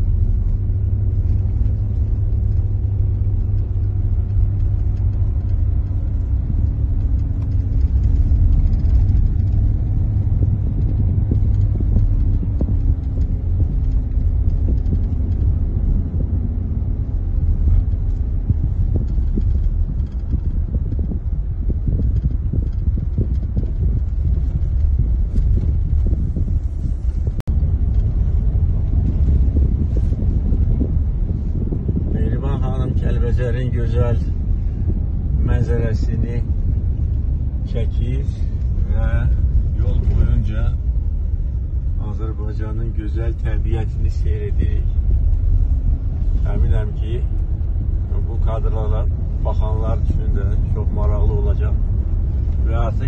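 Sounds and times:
car cabin road rumble: 0:00.0 - 0:53.0.

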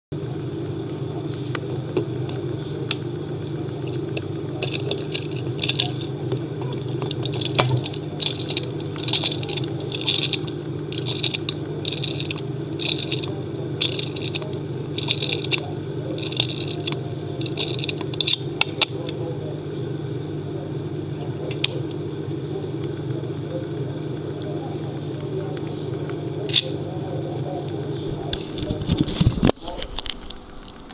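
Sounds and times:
steady low hum: 0:00.1 - 0:30.9
clockwork winding clicks: 0:04.6 - 0:06.1, 0:07.1 - 0:18.4.

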